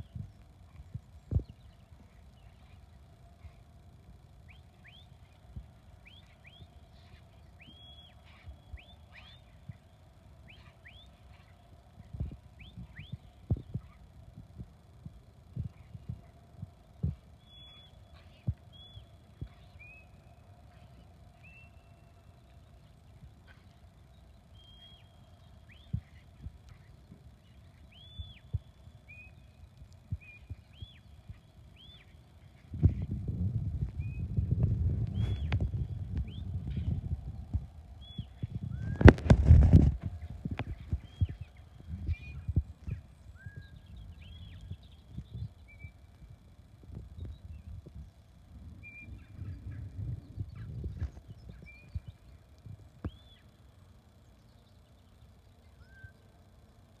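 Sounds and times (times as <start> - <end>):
dull low thumps: 32.7 - 43.0.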